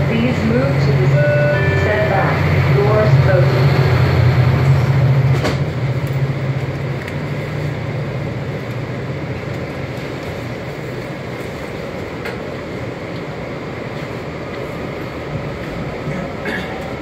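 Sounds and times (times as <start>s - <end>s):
low drone: 0.0s - 12.0s
freight train wheels on rail: 0.0s - 17.0s.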